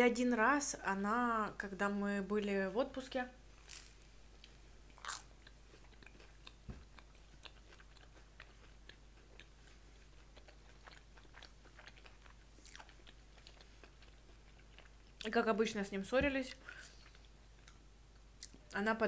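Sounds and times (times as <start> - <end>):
chewing and crunching food: 3.6 - 15.5, 16.5 - 18.8.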